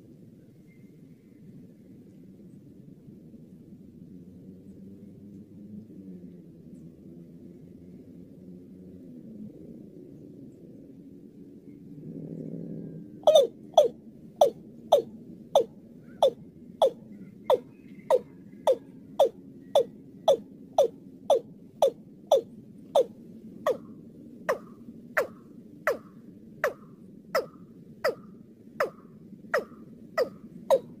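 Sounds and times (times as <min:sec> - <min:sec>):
bird calling sharp notes: 0:13.2 - 0:23.1, 0:24.5 - 0:31.0.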